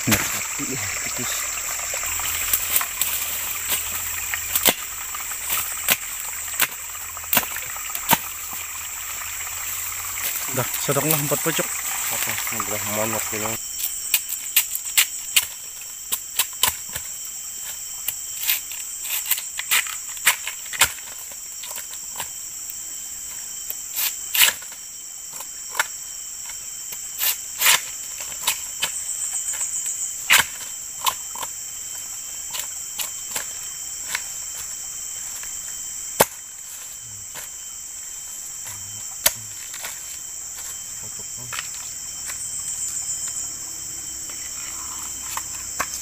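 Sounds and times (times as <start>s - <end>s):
insects droning: 0.0s - 46.0s
machete chopping bamboo: 4.5s - 4.9s, 30.3s - 31.5s, 36.2s - 36.4s.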